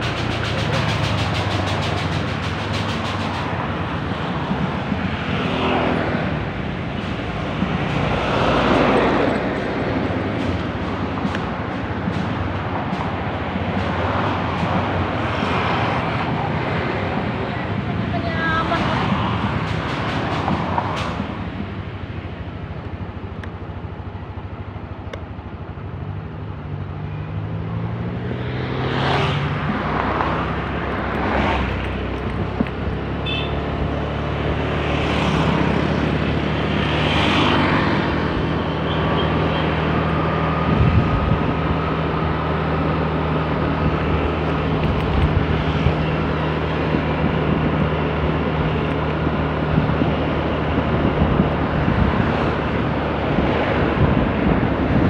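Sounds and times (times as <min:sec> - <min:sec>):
traffic passing: 0:00.0 - 0:55.0.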